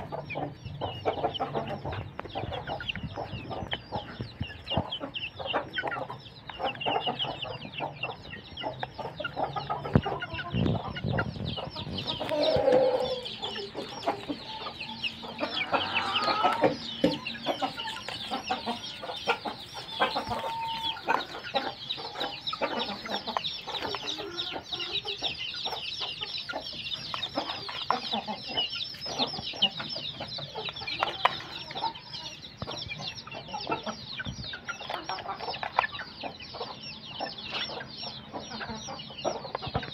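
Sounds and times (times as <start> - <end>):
chicks cheeping and clucking: 0.0 - 39.9.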